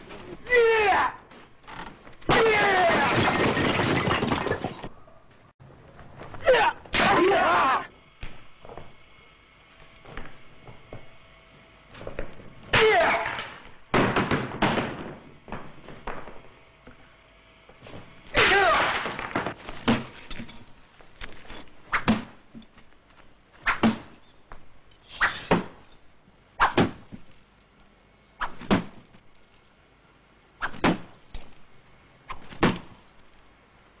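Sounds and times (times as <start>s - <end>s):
person shouting: 0.4s - 1.2s, 6.4s - 7.9s, 12.7s - 13.4s, 18.4s - 19.0s.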